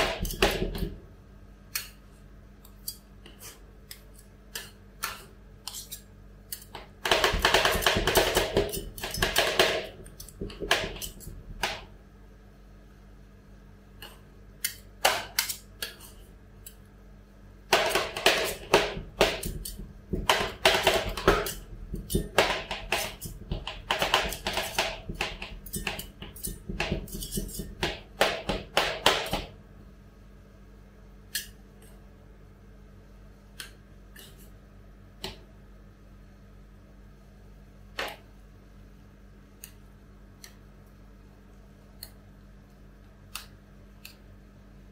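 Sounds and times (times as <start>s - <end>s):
spatula taps and scrapes: 0.0s - 1.0s, 2.6s - 11.9s, 14.0s - 16.8s, 17.7s - 29.5s, 33.6s - 34.5s.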